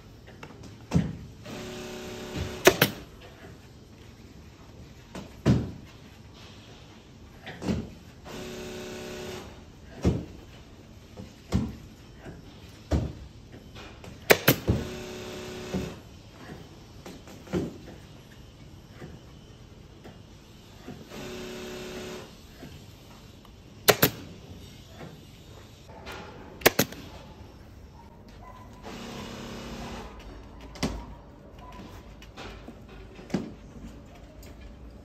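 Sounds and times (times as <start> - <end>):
pneumatic hiss: 0.9 - 3.6, 11.1 - 27.5
staple gun clacks: 23.9 - 24.2, 26.6 - 27.0.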